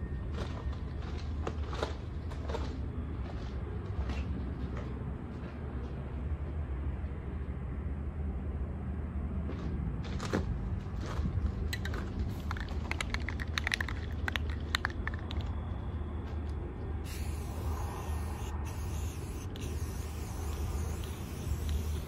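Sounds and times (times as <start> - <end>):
spray can ball rattling: 12.4 - 15.4, 17.1 - 22.0
spray paint hissing: 17.0 - 22.0.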